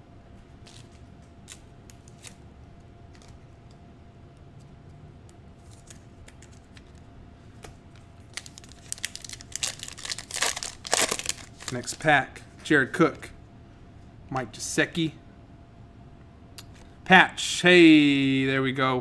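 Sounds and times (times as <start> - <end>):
faint steady hum: 0.0 - 19.0
foil pack crinkling: 8.3 - 12.0.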